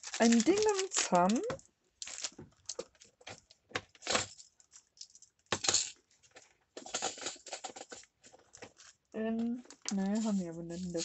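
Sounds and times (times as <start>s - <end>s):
craft supplies knocking and clinking: 5.5s - 6.0s, 6.8s - 11.0s.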